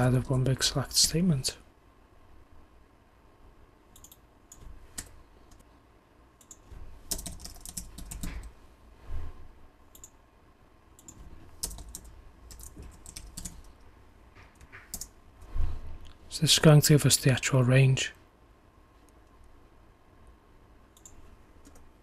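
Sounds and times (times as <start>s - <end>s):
computer keyboard typing: 3.9s - 5.6s, 6.4s - 8.5s, 11.0s - 13.8s, 14.5s - 15.2s, 21.0s - 21.9s.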